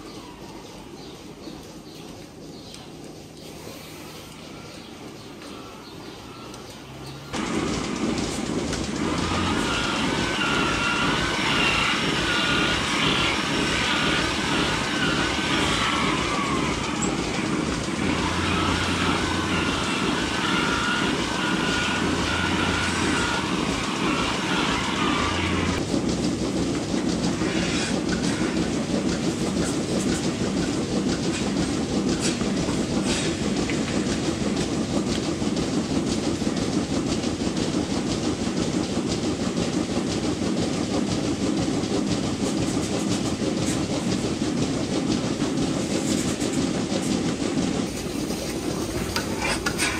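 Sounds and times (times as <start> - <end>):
milking machinery rumbling: 0.0 - 49.9
high-pitched squeal: 9.0 - 25.8.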